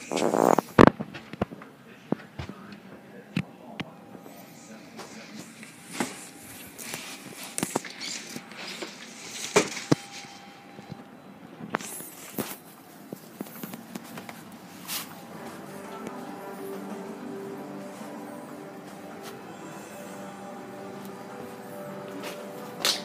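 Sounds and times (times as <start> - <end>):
footsteps: 11.7 - 23.0.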